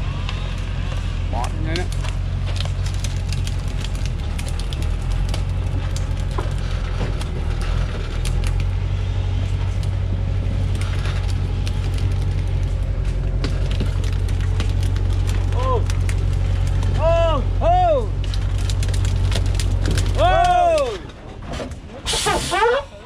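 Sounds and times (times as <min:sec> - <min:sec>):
truck engine idling: 0:00.0 - 0:23.0.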